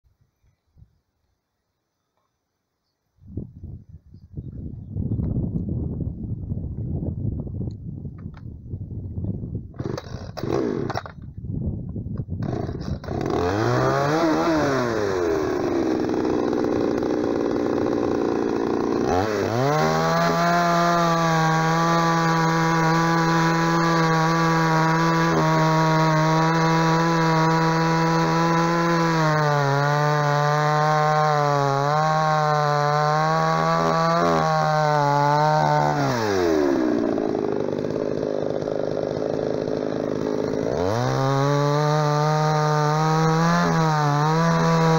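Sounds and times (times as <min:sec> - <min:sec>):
chainsaw cutting a log: 0:09.8 - 0:11.2, 0:12.4 - 0:44.9.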